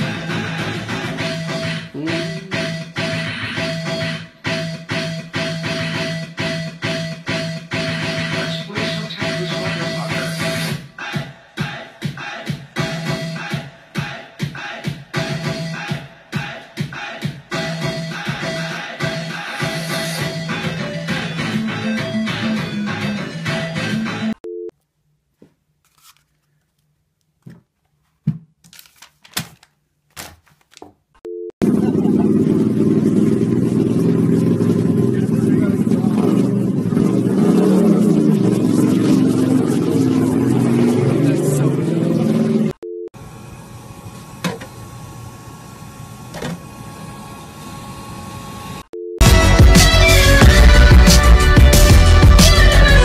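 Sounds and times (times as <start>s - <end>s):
loud electronic music: 0.0s - 24.4s, 33.8s - 42.8s, 49.2s - 53.0s
paper roll rustling: 25.8s - 31.0s
drink machine humming: 43.2s - 48.9s.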